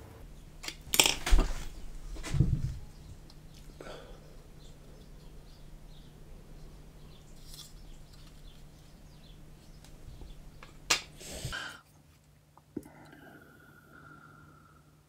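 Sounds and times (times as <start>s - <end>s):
steady low hum: 0.0s - 11.8s
plastic part clicking and rustling: 0.6s - 1.6s.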